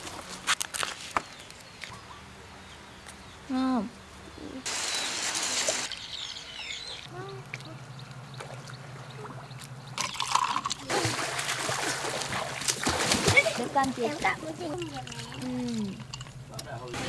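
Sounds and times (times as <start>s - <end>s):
steady low hum: 5.9s - 13.0s
water splashing and pouring: 10.0s - 16.2s.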